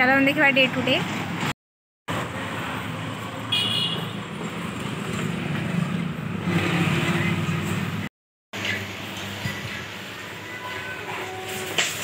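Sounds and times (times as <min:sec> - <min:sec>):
passing vehicles: 0:00.0 - 0:08.1.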